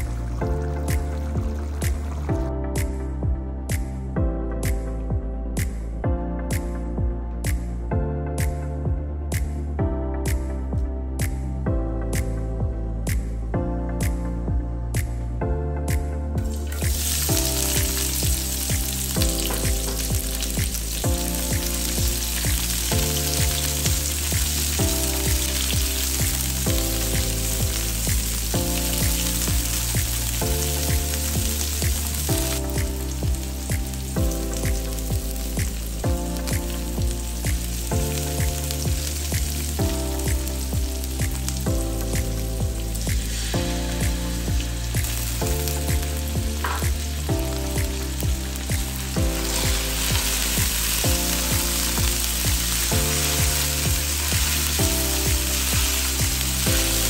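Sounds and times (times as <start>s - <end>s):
background music: 0.0s - 57.0s
onions sizzling in oil: 16.5s - 57.0s.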